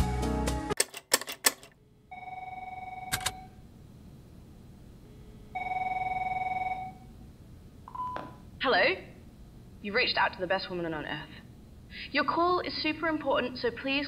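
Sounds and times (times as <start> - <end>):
telephone ringing: 2.1 - 3.6, 5.5 - 7.1.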